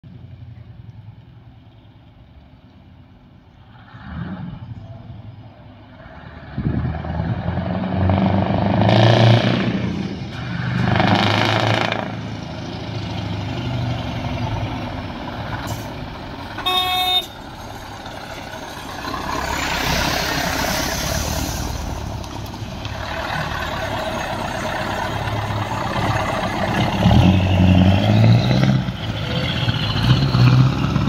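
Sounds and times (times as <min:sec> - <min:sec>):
loud truck engine revving: 0:03.7 - 0:04.8, 0:05.9 - 0:31.0
short horn toot: 0:16.6 - 0:17.4.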